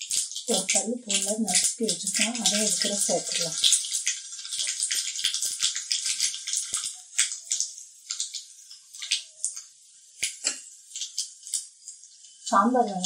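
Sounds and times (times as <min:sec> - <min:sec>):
hot oil sizzling: 0:00.0 - 0:13.0
seeds crackling and popping: 0:00.0 - 0:13.0.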